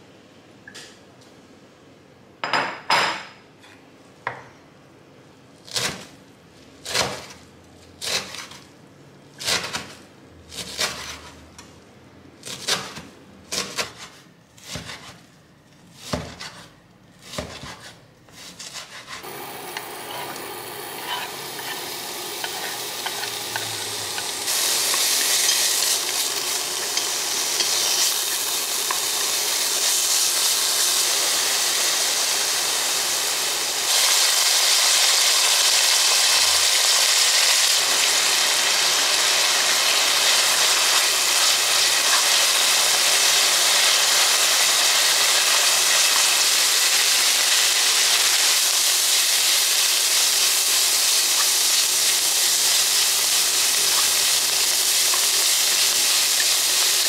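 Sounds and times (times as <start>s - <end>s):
meat sizzling in frying pan: 19.2s - 57.0s.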